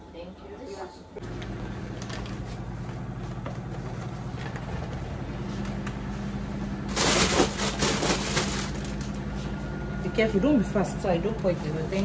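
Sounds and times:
food containers rustling and clattering: 0:01.2 - 0:09.6
freezer compressor humming: 0:01.2 - 0:12.0.

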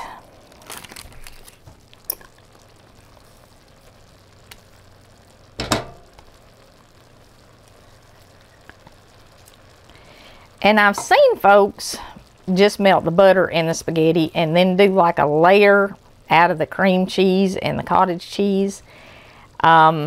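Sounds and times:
foil crinkling: 0:00.0 - 0:04.8
faint sizzle from pans: 0:00.0 - 0:20.0.

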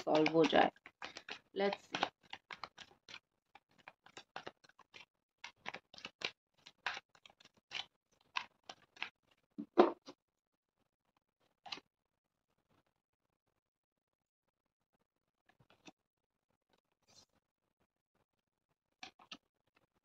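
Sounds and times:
cards being shuffled by hand: 0:00.0 - 0:10.0, 0:19.0 - 0:19.4.

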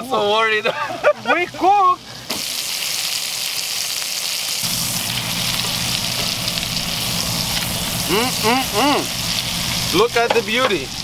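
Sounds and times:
steaks sizzling in a skillet: 0:02.3 - 0:11.0
low steady hum: 0:04.6 - 0:10.0.

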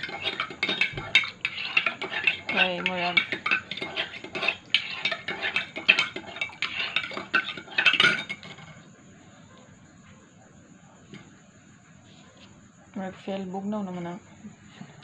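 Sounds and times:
spoon clinking in ceramic mug: 0:00.0 - 0:08.4.

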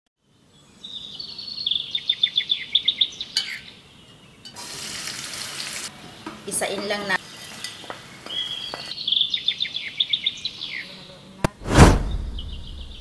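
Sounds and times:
bird singing high chirps: 0:00.6 - 0:04.2, 0:07.3 - 0:11.1, 0:12.4 - 0:13.0
food frying in oil: 0:04.5 - 0:08.9.

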